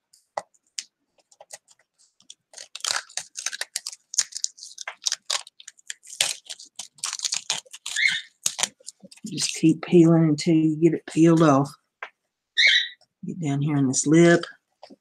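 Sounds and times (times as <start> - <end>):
sheet peeling off wood crackling: 1.4 - 9.3.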